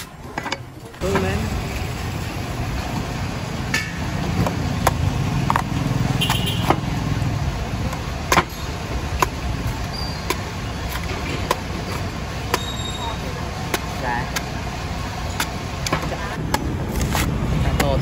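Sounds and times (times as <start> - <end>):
street traffic rumble: 0.0 - 18.0
cleaver chopping coconut husk: 4.0 - 18.0.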